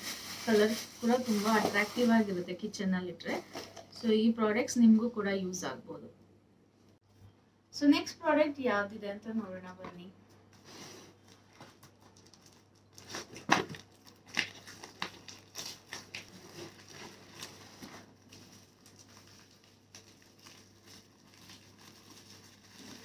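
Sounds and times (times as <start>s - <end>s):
packaging crinkling and tearing: 0.0s - 2.4s, 11.2s - 23.0s.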